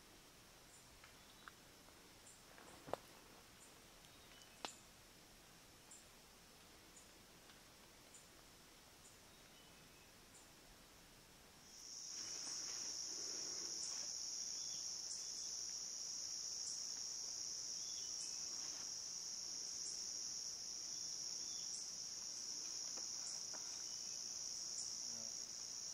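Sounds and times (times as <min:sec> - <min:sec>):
insect buzzing: 0:11.7 - 0:25.9.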